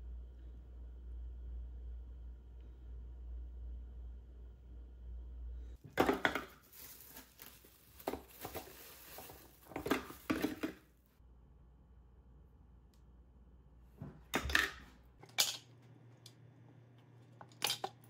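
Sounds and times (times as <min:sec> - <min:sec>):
frozen pieces clunking into plastic bowl: 0:05.9 - 0:10.9
handling rustle: 0:06.3 - 0:10.8.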